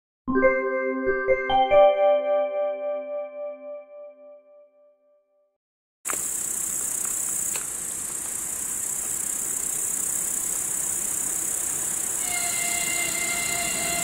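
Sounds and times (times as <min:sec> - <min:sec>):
insects chirring: 0:06.1 - 0:14.0.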